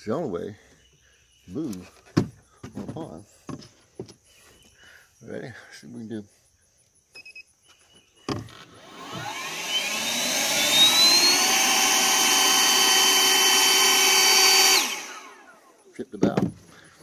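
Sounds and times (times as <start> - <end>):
boat motor whining: 8.3 - 15.6.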